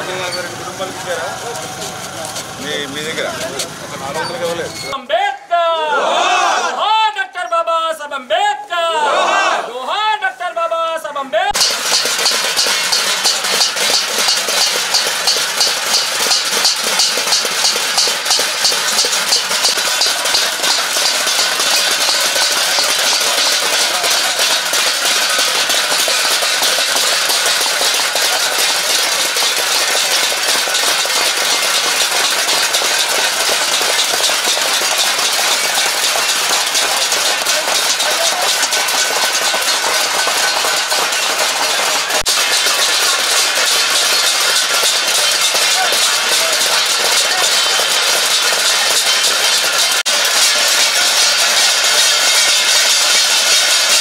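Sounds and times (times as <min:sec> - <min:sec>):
metal plates banged with spoons: 0:11.5 - 0:54.0.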